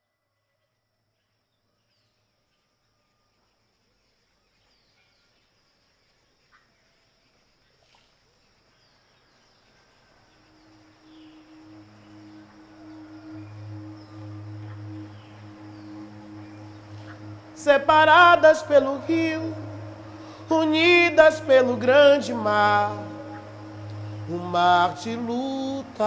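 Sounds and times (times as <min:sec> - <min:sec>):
insect drone: 0:00.1 - 0:26.0
birds chirping: 0:08.8 - 0:26.0.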